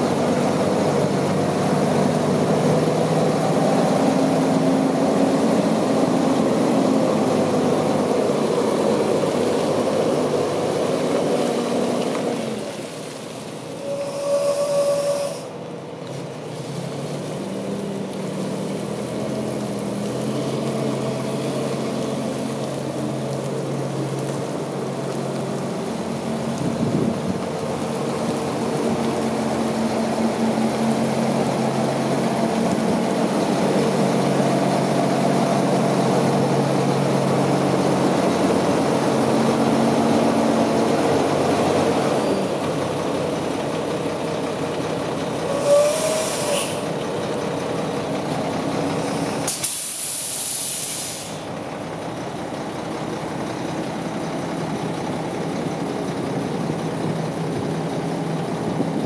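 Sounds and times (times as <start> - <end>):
diesel truck engine idling: 14.8 - 59.0
air hissing: 45.5 - 46.9, 49.5 - 51.5.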